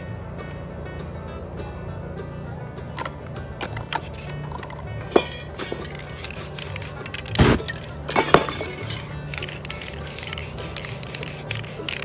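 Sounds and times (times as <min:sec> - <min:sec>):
background music: 0:00.0 - 0:12.0
spray can hissing: 0:05.2 - 0:12.0.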